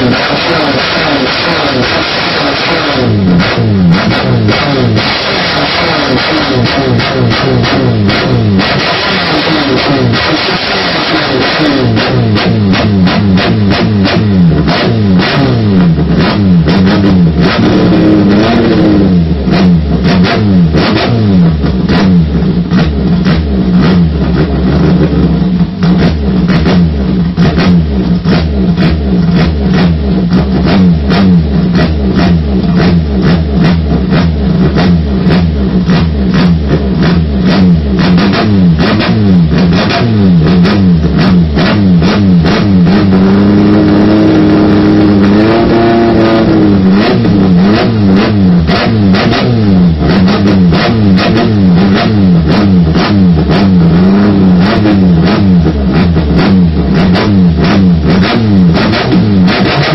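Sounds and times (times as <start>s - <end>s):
engine sharp cracks: 19.5s - 59.9s.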